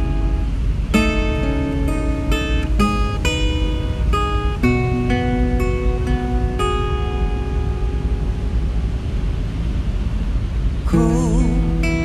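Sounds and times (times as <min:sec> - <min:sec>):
acoustic guitar playing chords: 0:00.0 - 0:12.0.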